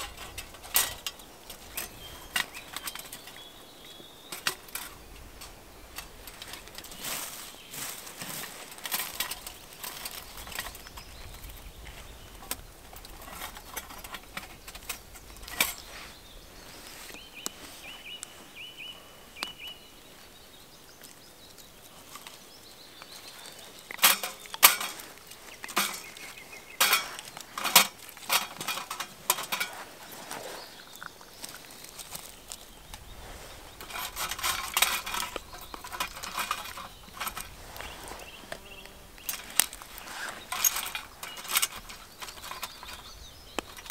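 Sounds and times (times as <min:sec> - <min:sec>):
small bird chirping: 0:00.0 - 0:08.4, 0:09.2 - 0:43.9
twigs cracking and knocking: 0:00.0 - 0:18.5, 0:19.3 - 0:43.9.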